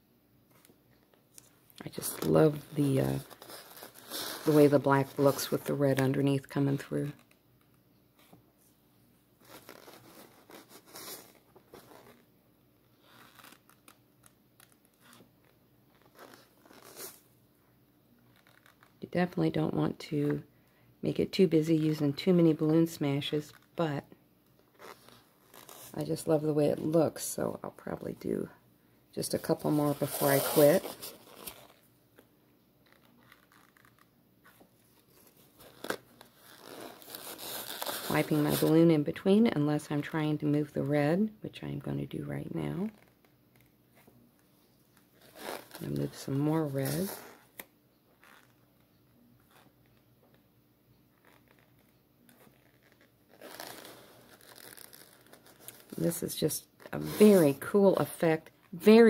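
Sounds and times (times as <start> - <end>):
paper crinkle: 1.4 - 5.6, 29.9 - 31.9, 32.8 - 38.8, 51.1 - 56.2
balloon crackling in wet paint: 51.2 - 56.2.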